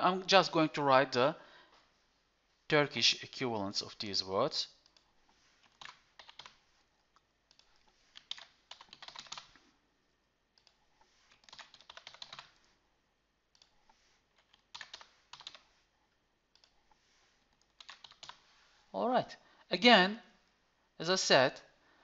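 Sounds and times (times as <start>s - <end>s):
keyboard typing: 4.8s - 6.6s, 7.4s - 9.6s, 10.6s - 12.7s, 13.5s - 15.7s, 16.5s - 16.9s, 17.5s - 18.4s.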